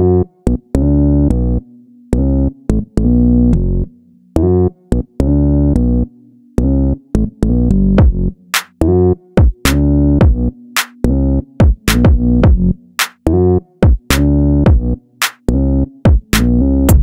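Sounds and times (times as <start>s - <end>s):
bouncy staccato chords music: 8.0s - 11.0s, 11.6s - 17.0s.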